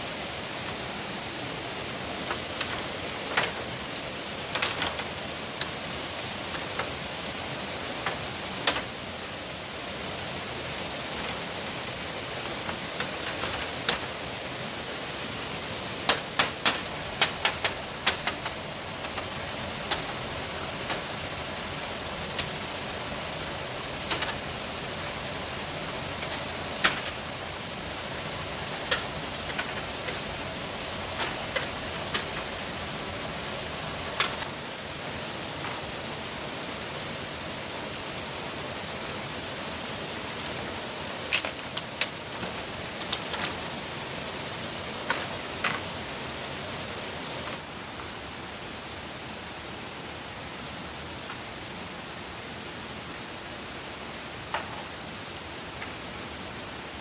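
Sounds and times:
outdoor hiss: 0.0 - 57.0
tools knocking on bamboo: 16.1 - 19.3.

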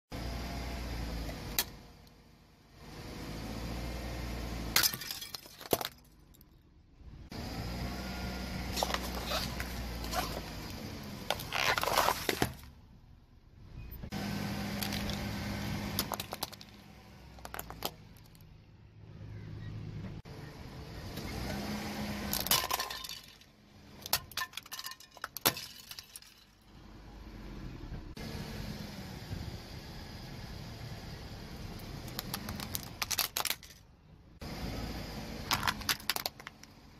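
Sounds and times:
car engine running low: 7.0 - 22.5
plastic toys cracking under wheel: 16.0 - 16.8, 17.4 - 18.4, 32.1 - 33.9, 35.5 - 36.8.

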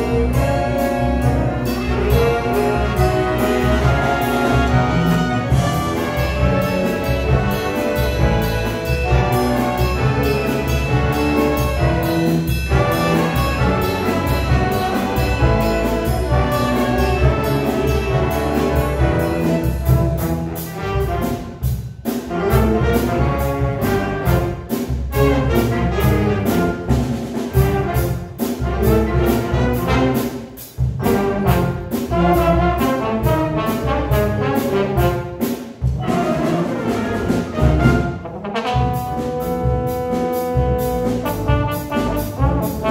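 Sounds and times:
jazz big band playing: 0.0 - 42.9
steady drum beat: 0.0 - 42.9.

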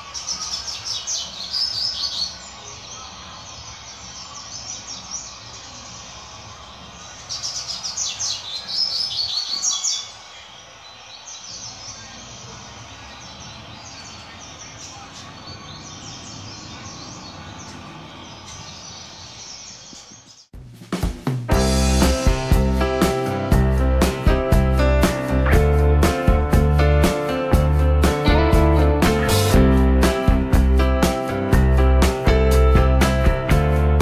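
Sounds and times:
soft bird chirps: 0.0 - 20.5.

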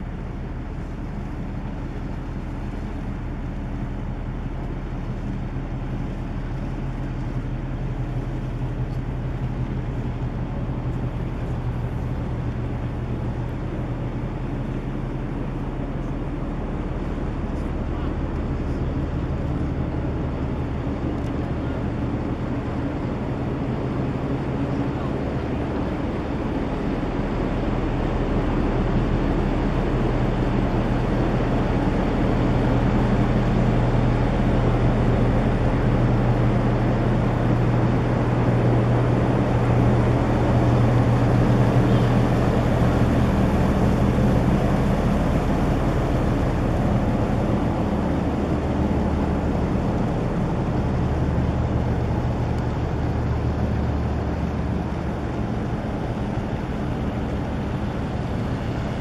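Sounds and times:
ship diesel machinery humming: 0.0 - 59.0.

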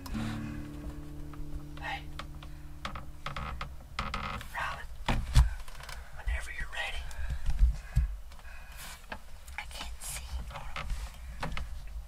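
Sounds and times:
faint whispering: 1.8 - 2.1, 4.4 - 5.0, 6.2 - 7.3, 9.4 - 11.1.

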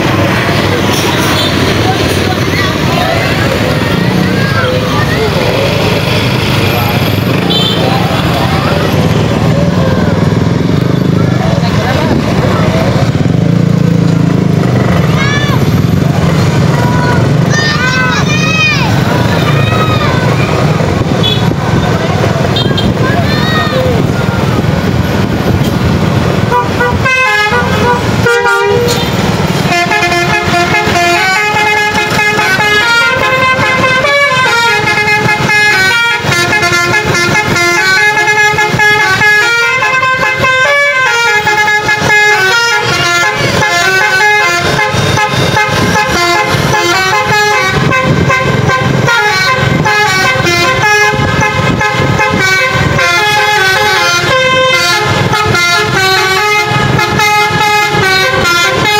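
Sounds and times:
musical air horn playing tune: 26.5 - 58.9.

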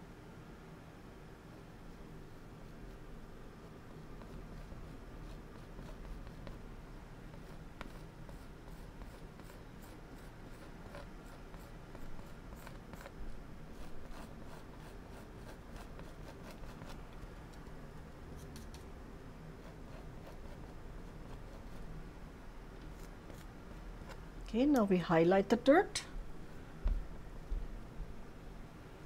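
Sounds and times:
paint brush scratching on canvas: 1.9 - 6.6, 7.3 - 17.0, 19.6 - 21.9.

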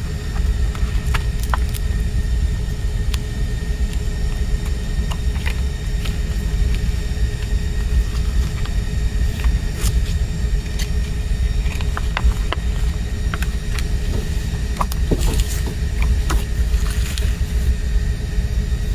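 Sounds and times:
steady low rumble: 0.0 - 18.9
paper rustling: 4.3 - 17.8.

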